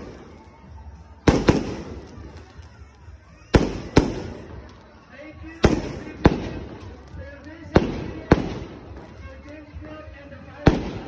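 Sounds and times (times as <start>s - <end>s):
fireworks bangs with rumble: 1.2s - 2.4s, 3.5s - 4.7s, 5.6s - 9.2s, 10.6s - 11.0s.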